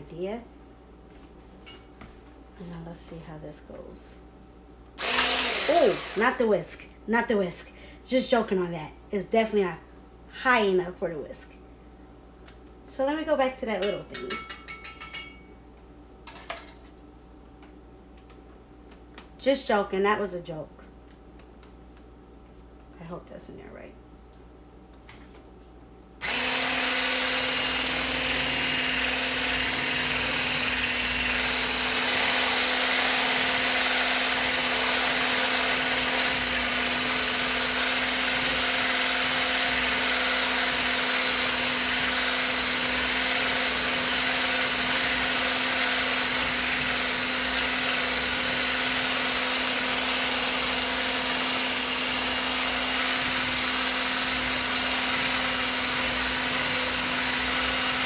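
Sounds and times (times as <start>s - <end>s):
hand blender motor hum: 5.0s - 6.4s, 26.2s - 58.0s.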